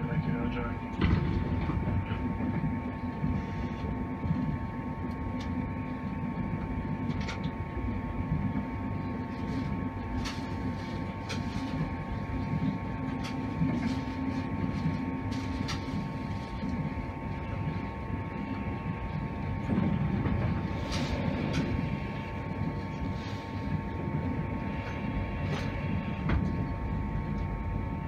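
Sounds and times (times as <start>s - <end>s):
constant hum: 0.0s - 28.0s
train wheels rumbling on rail: 18.8s - 27.5s.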